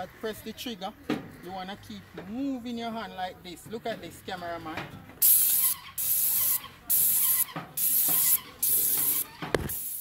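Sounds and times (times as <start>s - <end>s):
paint sprayer gun hissing: 5.2s - 10.0s.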